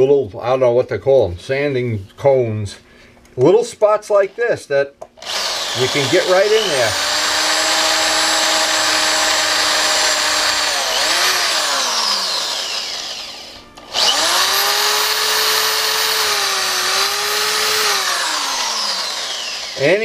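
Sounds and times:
rotary tool motor whine: 0:05.2 - 0:20.0.

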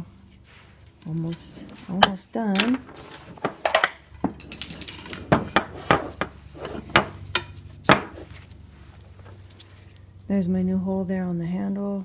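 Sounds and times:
metal parts clinking: 0:00.8 - 0:08.3.

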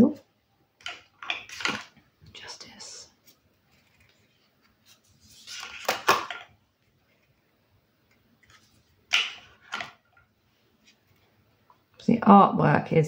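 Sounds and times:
cards rustling: 0:03.2 - 0:06.5.

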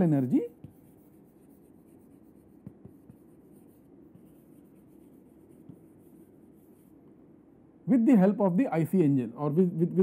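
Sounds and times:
chalk scratching on chalkboard: 0:00.0 - 0:07.0
chalk tapping on board: 0:00.6 - 0:06.9.

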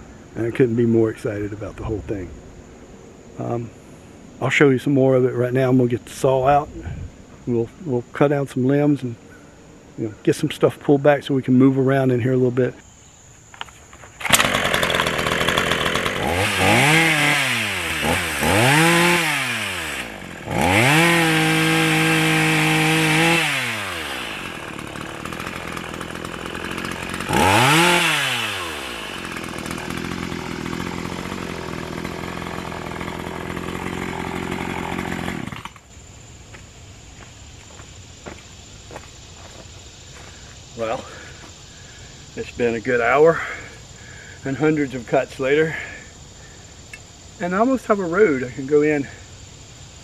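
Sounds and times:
chainsaw revving: 0:14.2 - 0:35.9.

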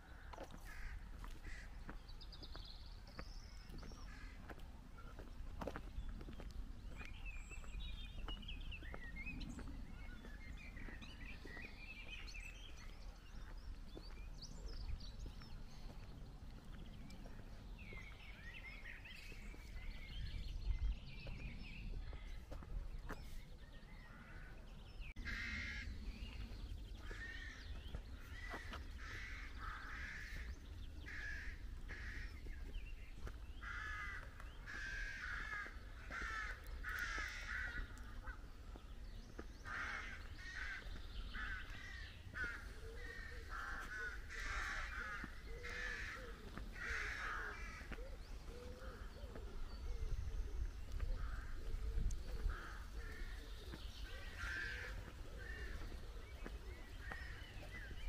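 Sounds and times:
crows cawing: 0:00.1 - 0:02.0, 0:25.2 - 0:26.0, 0:27.0 - 0:32.5, 0:33.6 - 0:38.5, 0:39.6 - 0:49.4, 0:52.5 - 0:56.0.

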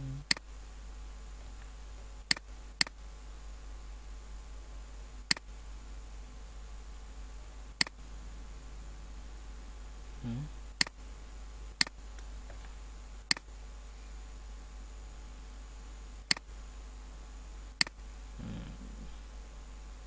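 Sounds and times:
low electrical hum: 0:00.0 - 0:20.0
computer mouse clicks: 0:05.3 - 0:05.5, 0:13.3 - 0:13.5, 0:16.3 - 0:16.5.

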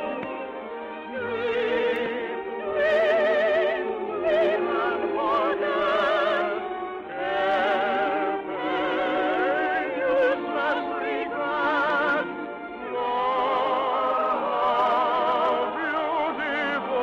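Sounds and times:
musical accompaniment: 0:00.0 - 0:17.0
operatic singing with vibrato: 0:00.0 - 0:17.0.

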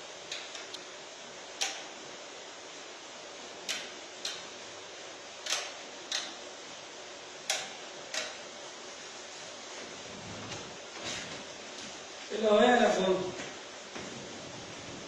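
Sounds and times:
steady hiss: 0:00.0 - 0:15.0
sharp clicks in pairs: 0:01.6 - 0:01.9, 0:03.7 - 0:04.4, 0:05.4 - 0:06.4, 0:07.5 - 0:08.4.

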